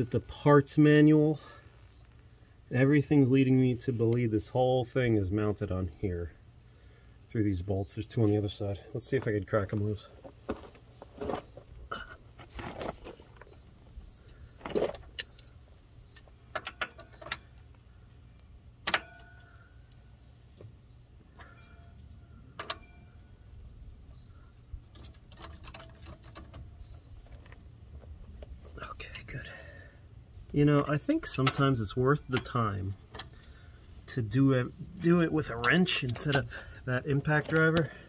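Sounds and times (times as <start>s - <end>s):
sharp metal knocks: 18.8s - 19.5s.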